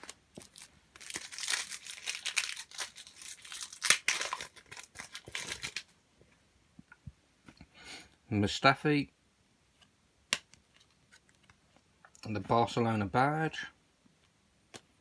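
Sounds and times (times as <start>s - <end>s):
card pack wrapper tearing: 0.0s - 5.9s.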